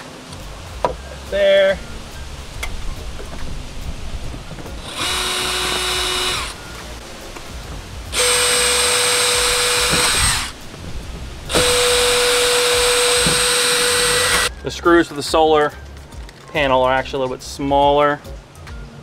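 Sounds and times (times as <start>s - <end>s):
cordless drill drilling: 4.8s - 6.6s, 8.1s - 10.6s, 11.5s - 14.5s.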